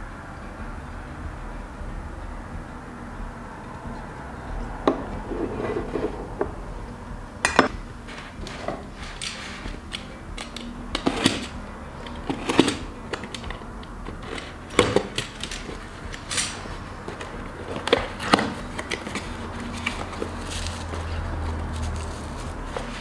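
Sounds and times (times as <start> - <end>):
cardboard box scrapes and knocks: 5.3 - 6.3.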